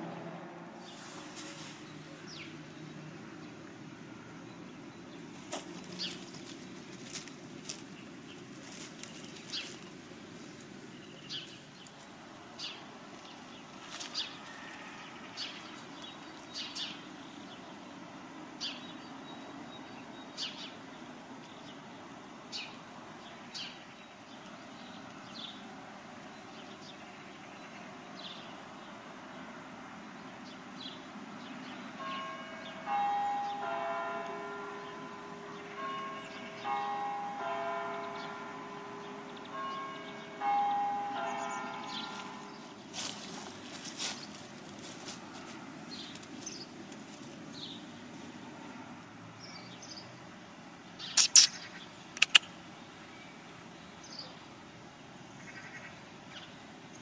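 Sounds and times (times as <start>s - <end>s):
bird chirping: 0.0s - 3.7s, 4.3s - 18.0s, 30.2s - 44.4s, 51.0s - 54.5s
church bells ringing: 31.9s - 44.3s.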